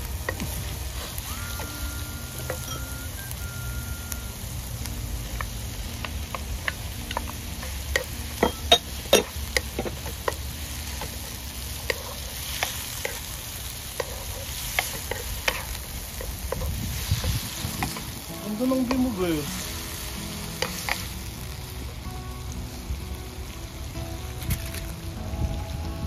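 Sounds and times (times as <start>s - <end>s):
light sizzle: 0.0s - 26.0s
wooden spoon scraping a pan: 13.9s - 18.1s.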